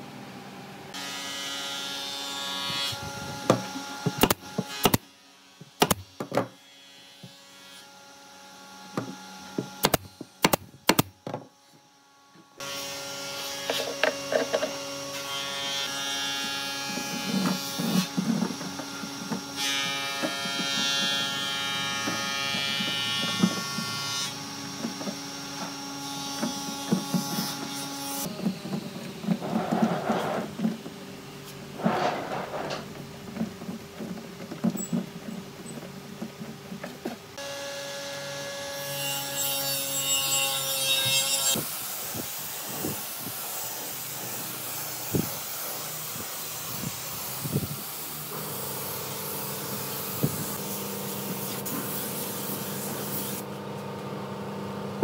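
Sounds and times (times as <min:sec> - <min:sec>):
plastic hose rustling and knocking: 0:28.3 - 0:37.4.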